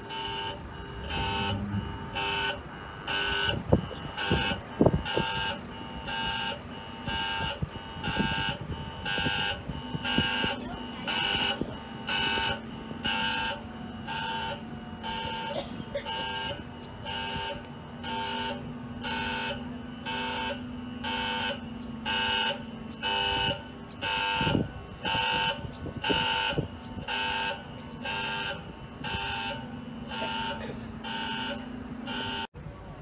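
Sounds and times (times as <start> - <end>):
electronic warning buzzer beeping: 0.1 - 15.5, 16.1 - 32.5
steady low hum: 0.6 - 2.6.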